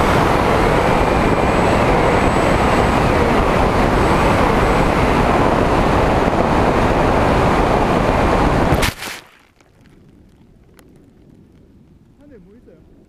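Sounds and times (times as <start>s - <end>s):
electric motor and propeller whine: 0.0s - 8.8s
wind rushing across camera: 0.0s - 9.2s
short crackle: 8.7s - 12.2s.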